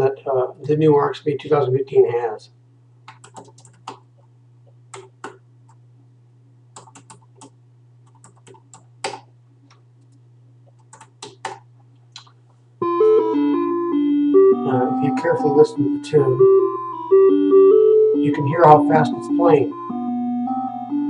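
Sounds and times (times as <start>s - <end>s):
steady low hum: 0.0s - 21.0s
keyboard key clicks: 3.1s - 4.0s, 4.9s - 5.4s.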